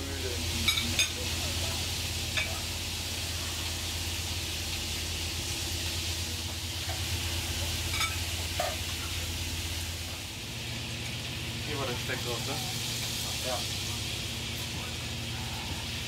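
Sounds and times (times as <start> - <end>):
cutlery clinking on plates: 7.9 - 8.8.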